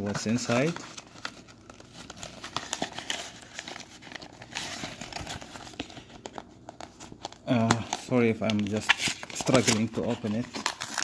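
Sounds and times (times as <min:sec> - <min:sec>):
cardboard tearing and scraping: 0:08.7 - 0:11.0.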